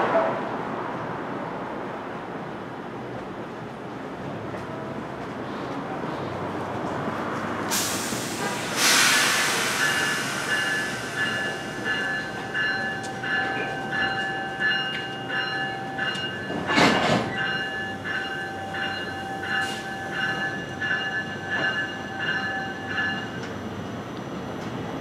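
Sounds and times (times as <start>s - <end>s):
hiss of air: 7.7s - 11.8s
train bell ringing: 9.4s - 23.6s.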